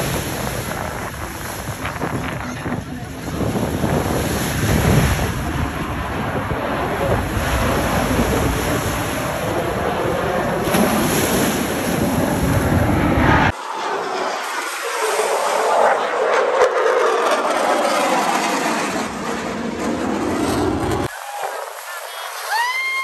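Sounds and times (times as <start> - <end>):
wind buffeting microphone: 0.0 - 13.6
jets roaring overhead: 0.0 - 23.0.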